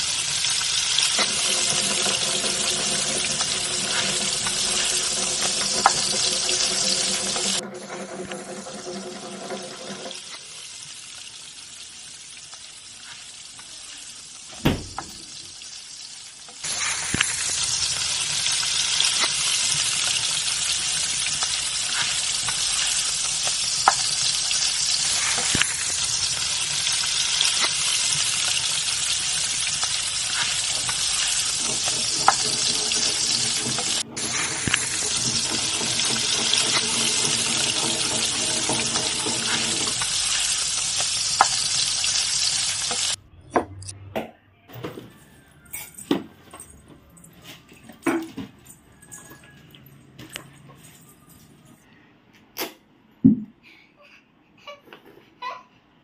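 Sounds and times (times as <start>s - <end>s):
noodles boiling and bubbling: 0.0s - 14.5s, 15.5s - 43.2s.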